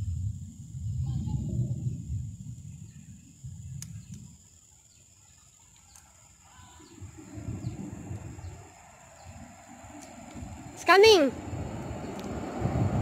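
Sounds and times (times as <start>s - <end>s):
wind buffeting microphone: 0.0s - 4.5s, 6.5s - 13.0s
faint bird chirps: 2.7s - 9.7s.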